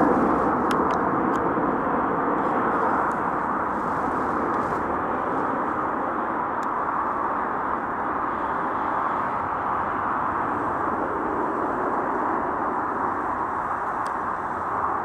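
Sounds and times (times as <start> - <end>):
jet engines rushing: 0.0 - 15.0.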